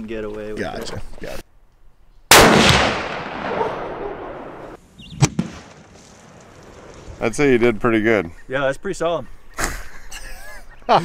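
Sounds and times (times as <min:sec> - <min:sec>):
rifle shot with echo: 0:02.3 - 0:06.4.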